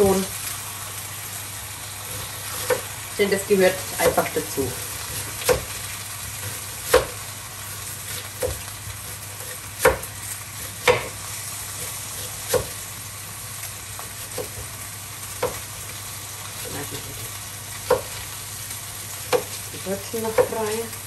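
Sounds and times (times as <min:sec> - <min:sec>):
meat sizzling in a pan: 0:00.0 - 0:21.0.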